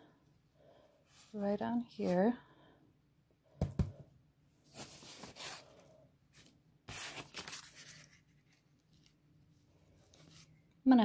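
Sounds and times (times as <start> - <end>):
banknotes rustling and sliding: 4.7 - 9.2.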